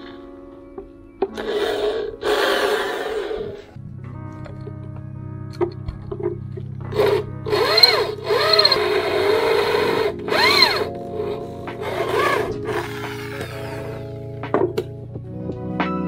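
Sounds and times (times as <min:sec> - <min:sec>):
background music: 0:00.0 - 0:16.0
electric drill boring steel: 0:01.4 - 0:03.8, 0:06.9 - 0:14.2.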